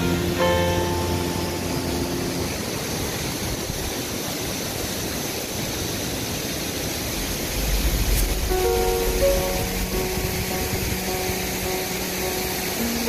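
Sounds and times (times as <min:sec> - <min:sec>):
background music: 0:00.0 - 0:02.6, 0:08.2 - 0:13.0
waterfall rushing water: 0:00.0 - 0:13.0.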